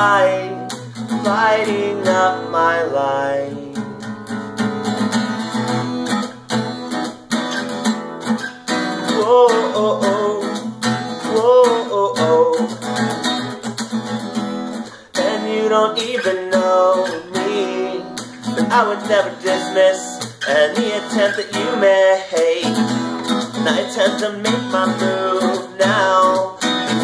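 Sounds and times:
person singing: 0.0 - 4.0, 9.0 - 12.9, 14.9 - 27.0
acoustic guitar strumming: 0.0 - 27.0.

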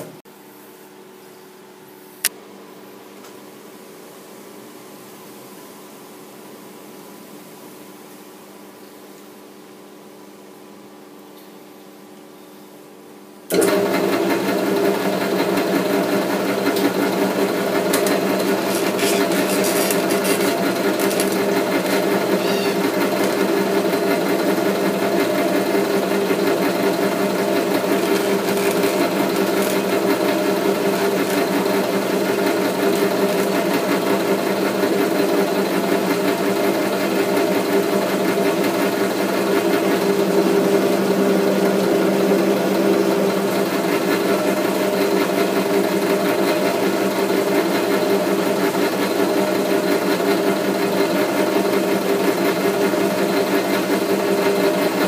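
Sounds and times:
metal lathe humming: 13.5 - 45.3.

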